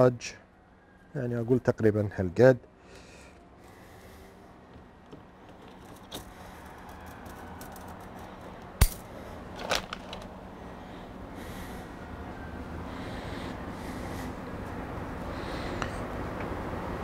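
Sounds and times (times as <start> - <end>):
metal wire clinking: 5.5 - 10.2.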